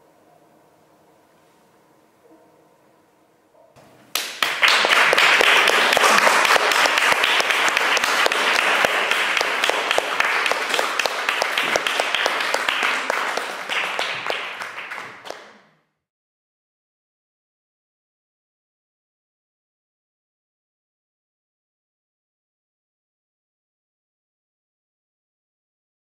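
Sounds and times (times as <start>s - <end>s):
audience applauding: 4.1s - 15.7s.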